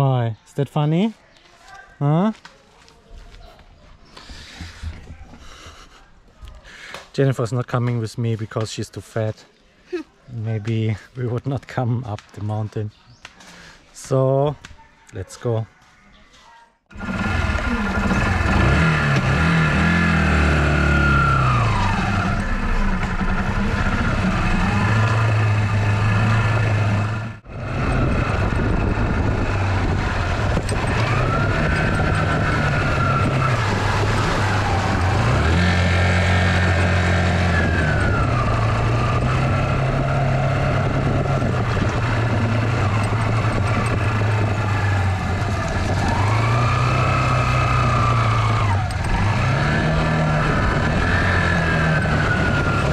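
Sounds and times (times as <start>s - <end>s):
motorcycle engine under load: 16.9s - 52.9s
high engine whine: 17.0s - 52.9s.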